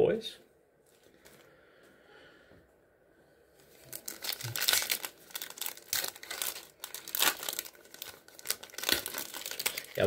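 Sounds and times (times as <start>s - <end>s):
foil wrapper crinkling and tearing: 3.7s - 10.0s.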